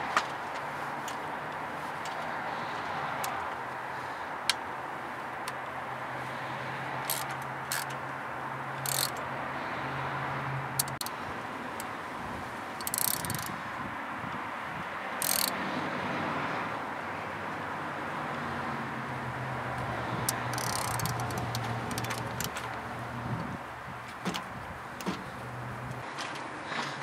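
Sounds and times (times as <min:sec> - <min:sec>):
hand ratchet clicking: 0:07.0 - 0:08.0, 0:08.8 - 0:09.2, 0:10.8 - 0:11.1, 0:12.8 - 0:13.6, 0:15.2 - 0:15.6, 0:19.8 - 0:22.8
tool rattles: 0:20.5 - 0:22.7.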